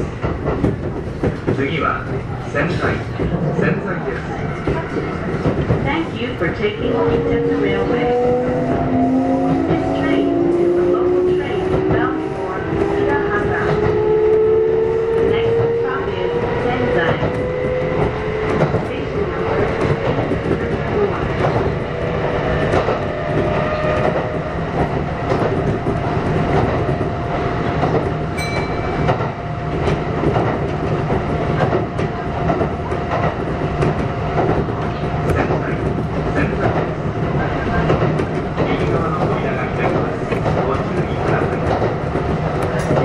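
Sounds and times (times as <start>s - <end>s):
train car rumble: 0.0s - 43.0s
electric train traction whine: 6.2s - 31.2s
rail-joint clicks: 27.8s - 43.0s.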